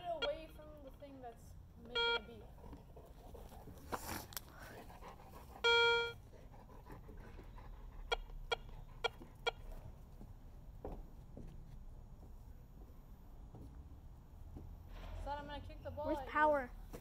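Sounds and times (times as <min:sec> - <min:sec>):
metal detector buzzy beep: 0:00.0 - 0:00.6, 0:01.9 - 0:02.4, 0:05.6 - 0:06.2
clothing and handling rustle: 0:02.8 - 0:04.8.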